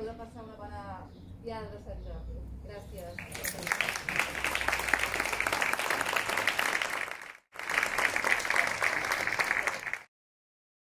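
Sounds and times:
audience applauding: 3.2 - 10.1.

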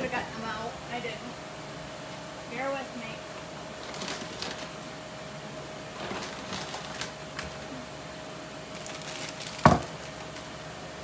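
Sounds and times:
steady appliance hum: 0.0 - 11.0
kitchen items knocking and rattling: 9.5 - 10.0.

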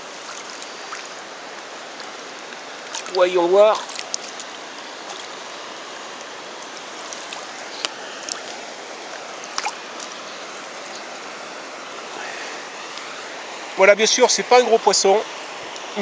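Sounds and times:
river rushing: 0.0 - 16.0
clicks and splashes: 0.2 - 5.5, 6.1 - 10.2, 10.8 - 11.2.

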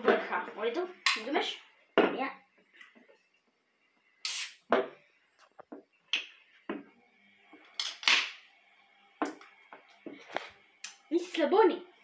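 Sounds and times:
soda can opening hiss: 4.2 - 4.7, 7.7 - 8.4.

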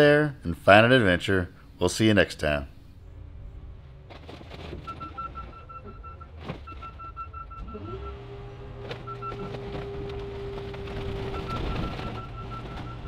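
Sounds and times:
low engine drone: 2.7 - 6.4.

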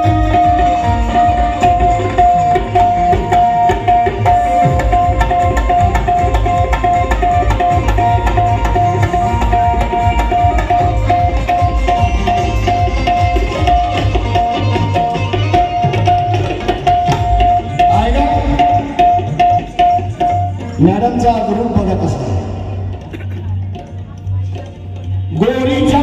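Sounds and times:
hand drumming: 0.0 - 20.7.

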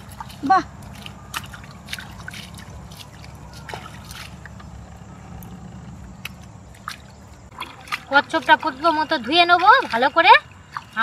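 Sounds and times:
small clicks and taps in mud: 0.0 - 4.8, 5.4 - 8.7
low steady rumble: 0.0 - 11.0
muddy water trickling and sloshing: 0.0 - 11.0.

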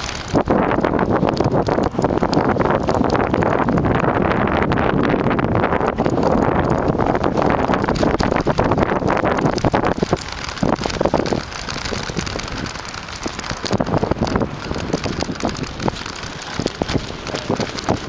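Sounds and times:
wind buffeting microphone: 0.0 - 18.0
bike rattling knocks: 5.4 - 18.0
tyres crunching on sandy dirt: 5.9 - 18.0.

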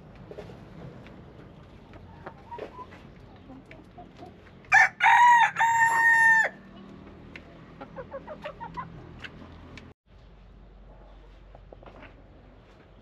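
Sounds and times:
rooster crowing: 4.7 - 6.7.

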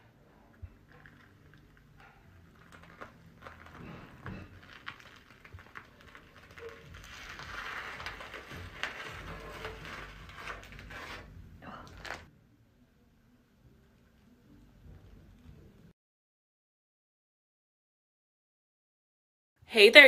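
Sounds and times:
sticky prosthetic peeling off skin: 2.5 - 12.3.

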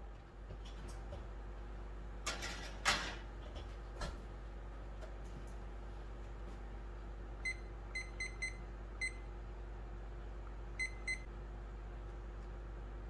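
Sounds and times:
kitchen timer beeps: 7.4 - 9.3, 10.8 - 11.3.

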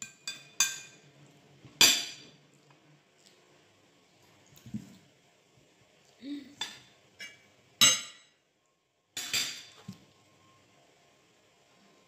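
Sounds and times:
cutlery clinking against dishes: 0.0 - 1.0, 1.8 - 2.4, 6.6 - 8.4, 9.2 - 9.9.

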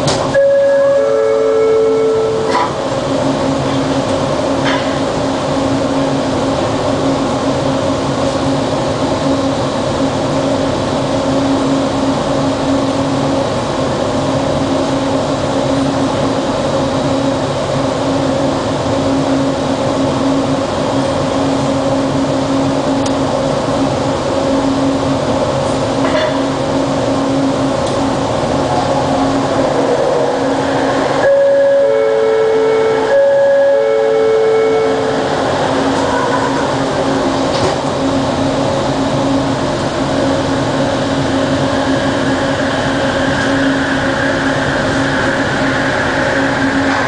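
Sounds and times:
train equipment hum: 0.0 - 47.0.

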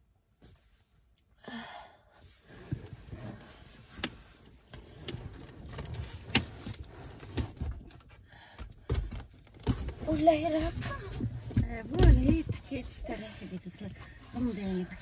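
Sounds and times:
soft low bumps: 9.2 - 15.0
cloth rustling against car seat: 9.8 - 15.0.

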